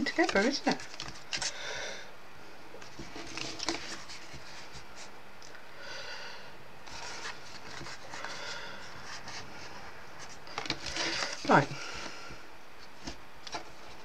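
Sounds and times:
card rustling and scraping: 0.0 - 1.6, 2.8 - 5.1, 6.8 - 12.2.

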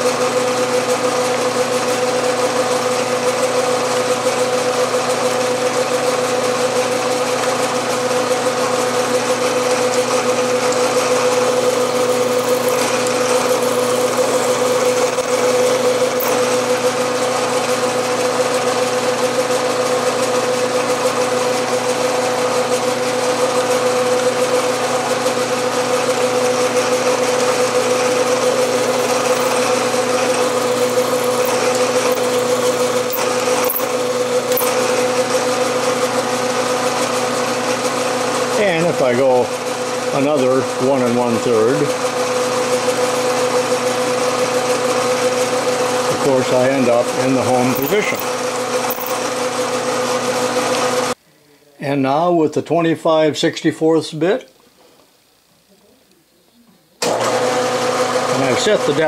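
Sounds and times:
milling machine motor humming: 0.0 - 51.2
drill spotting holes in metal: 0.4 - 17.6, 23.7 - 38.2.

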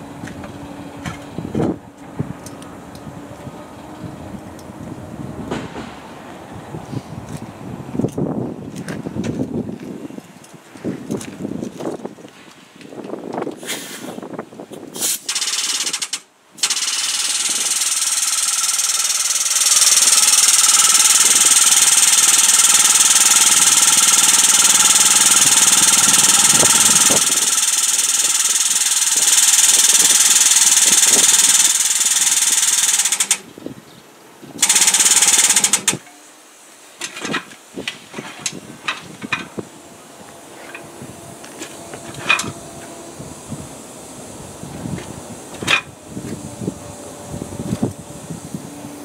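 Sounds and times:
air-driven pumps hissing: 13.0 - 33.7, 34.5 - 49.0.

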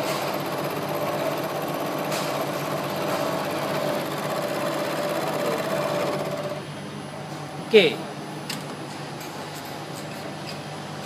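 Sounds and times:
milling machine whir: 0.0 - 6.7.

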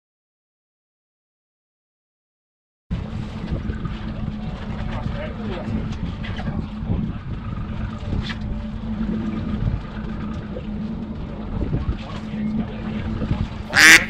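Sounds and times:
wind buffeting microphone: 2.9 - 14.0.

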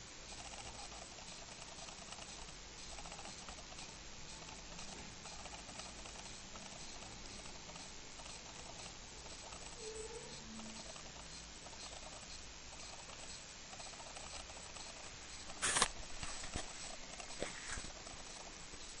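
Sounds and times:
faint steady hiss: 0.0 - 19.0
handling rustle: 15.6 - 18.0.

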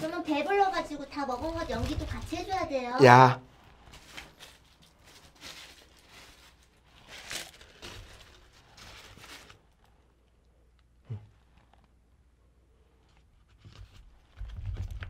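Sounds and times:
paper wrappers rustling and crinkling: 0.0 - 10.0.

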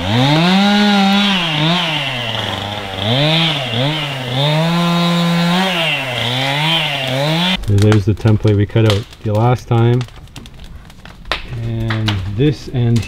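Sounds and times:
chainsaw engine revving: 0.0 - 7.9.

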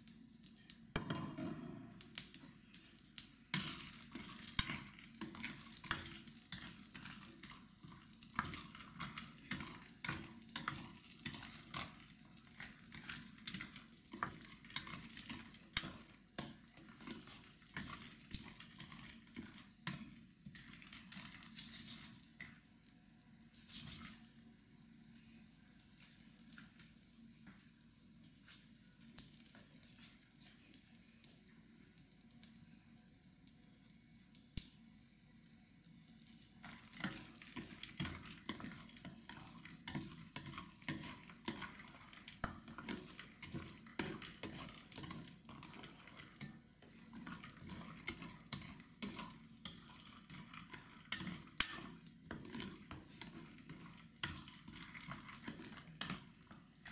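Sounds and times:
nuts sizzling in a frying pan: 0.0 - 56.9
spatula scraping and stirring: 3.5 - 22.7, 23.5 - 24.4, 36.5 - 56.9.

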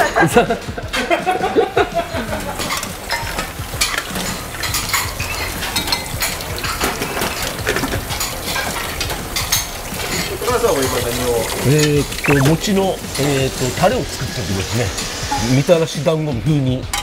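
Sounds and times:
utensils clinking on metal bowls: 2.6 - 12.0.

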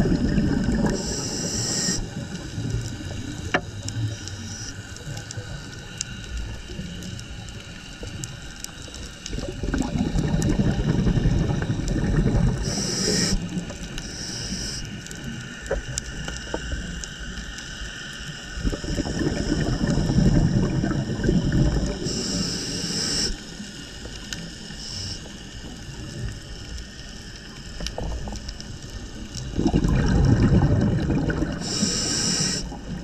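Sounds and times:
diver exhaling rumbling bubbles: 0.0 - 4.2, 9.3 - 13.7, 18.6 - 22.8, 27.9 - 33.0
regulator inhalation hiss: 0.8 - 6.3, 12.5 - 15.1, 21.8 - 25.8, 31.5 - 33.0
faint clicks: 12.6 - 18.4, 21.8 - 29.5.

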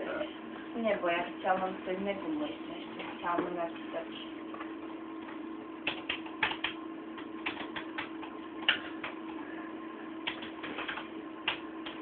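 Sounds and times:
low steady hum: 0.0 - 12.0
typing on keys: 5.8 - 9.2, 10.2 - 12.0.

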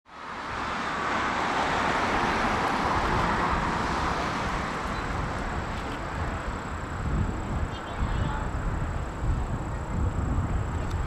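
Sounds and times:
distant jet engines roaring: 0.2 - 11.0.

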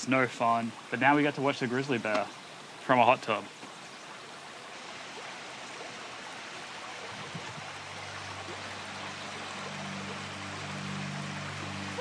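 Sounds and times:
running water: 0.0 - 12.0
low hum: 7.2 - 12.0.

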